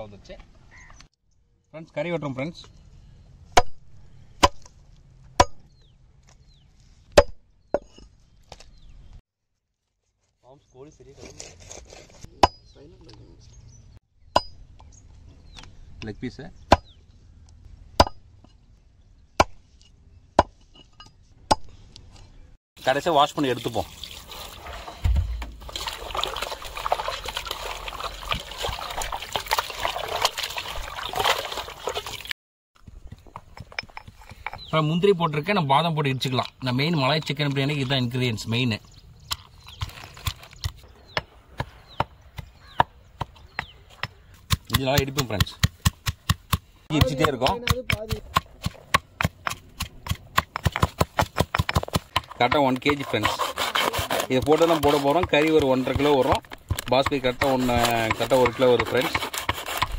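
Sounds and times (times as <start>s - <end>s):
water splashing and trickling: 22.8s - 32.4s
blade chopping chicken: 52.8s - 59.9s.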